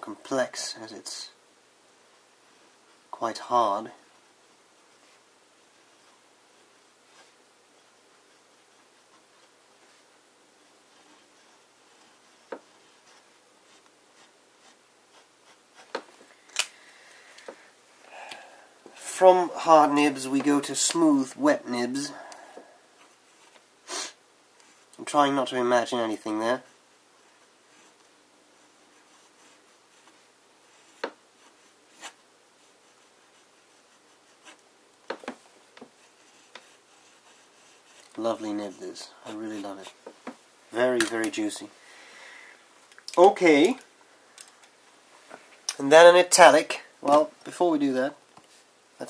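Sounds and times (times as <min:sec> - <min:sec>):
fountain pen scratching on paper: 0:10.9 - 0:16.0, 0:28.9 - 0:34.6, 0:36.0 - 0:38.1.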